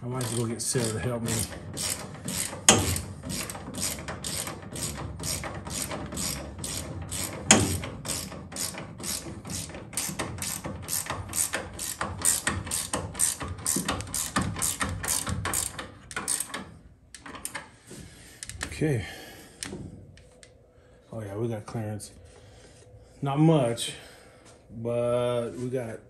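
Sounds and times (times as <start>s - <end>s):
ratchet wrench clicking: 0.2s - 17.6s.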